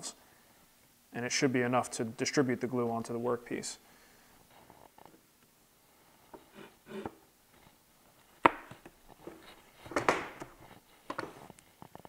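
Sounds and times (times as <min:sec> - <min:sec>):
wood scraping slide: 0:06.4 - 0:07.2
wooden knocks: 0:08.4 - 0:11.4.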